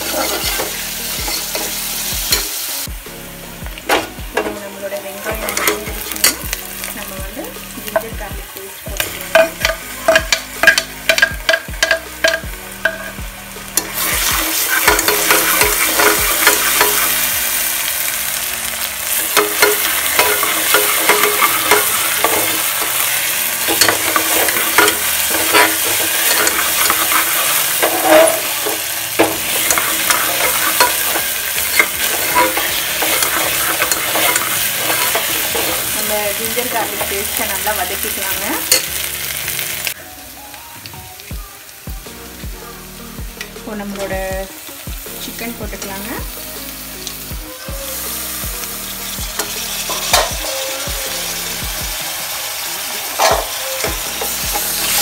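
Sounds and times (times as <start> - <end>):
metal ladle scraping pot: 0.0 - 2.5, 13.8 - 17.1, 19.4 - 36.1
onions sizzling in oil: 0.0 - 55.0.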